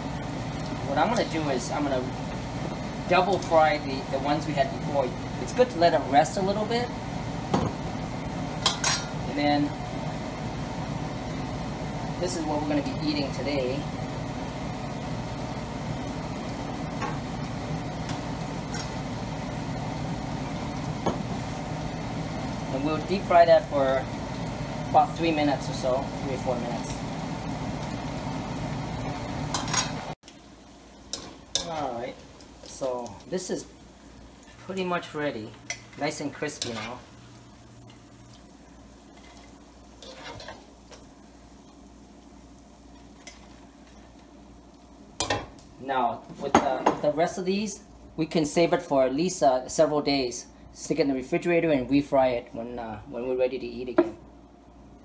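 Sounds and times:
chicken sizzling in hot oil: 0.0s - 46.5s
strainer scraping wok: 39.1s - 40.7s.

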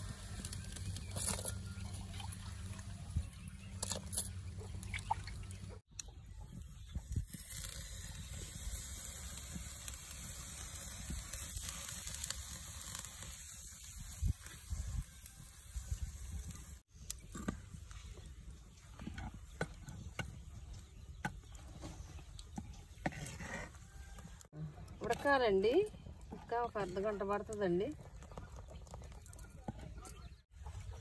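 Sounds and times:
wood fire crackles: 0.0s - 31.0s
milk simmering and bubbling in pot: 16.8s - 31.0s.

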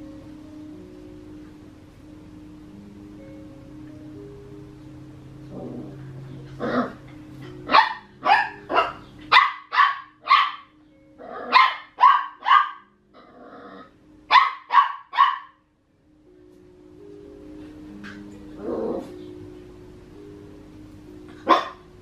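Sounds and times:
puppy yapping: 7.7s - 10.7s.

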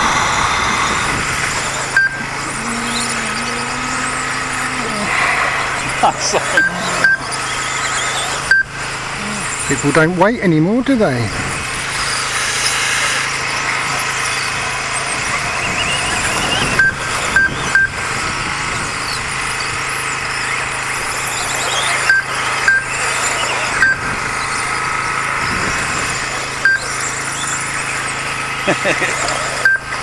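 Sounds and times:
rc car motors whining: 0.0s - 30.0s
lap timer beeps: 1.9s - 5.0s, 5.6s - 8.8s, 15.6s - 18.0s, 21.4s - 24.1s, 26.6s - 27.1s, 29.6s - 30.0s.

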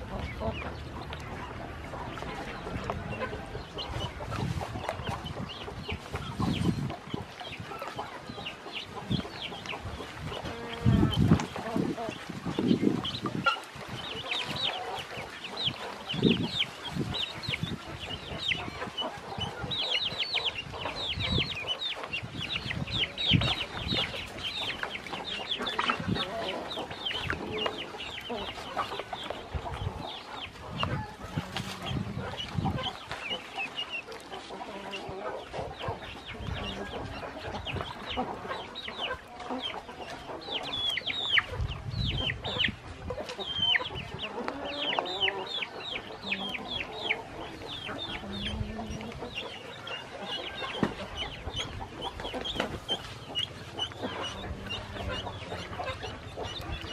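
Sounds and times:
ducklings peeping: 0.0s - 56.9s.

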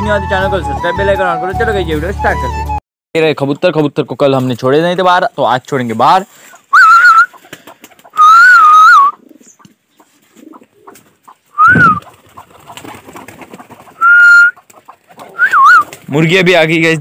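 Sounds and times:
person whistling: 6.7s - 7.3s, 8.2s - 9.2s, 11.6s - 12.0s, 14.0s - 14.6s, 15.4s - 15.8s
pigeons cooing: 6.7s - 16.1s.

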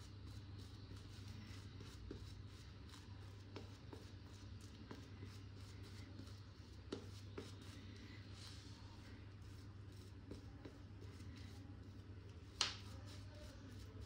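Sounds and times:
shaving brush bristly rustle: 12.8s - 14.0s.

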